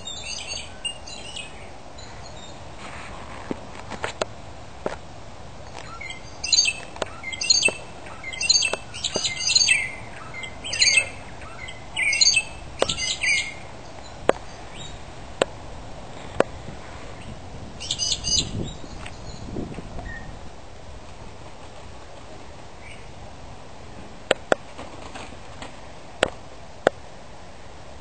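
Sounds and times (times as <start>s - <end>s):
birds fighting calls: 0.0s - 2.7s, 5.7s - 15.0s, 17.1s - 19.4s.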